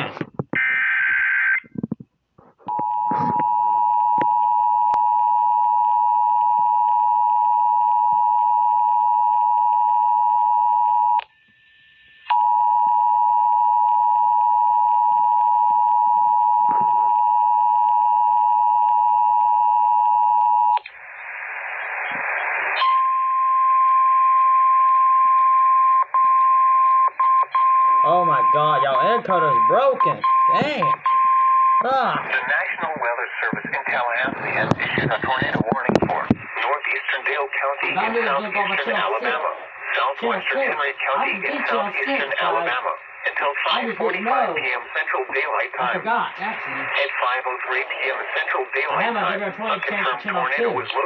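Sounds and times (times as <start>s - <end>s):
burst of static: 20.9s - 22.8s, 32.0s - 51.0s
radio hiss: 20.9s - 22.9s, 31.9s - 51.0s.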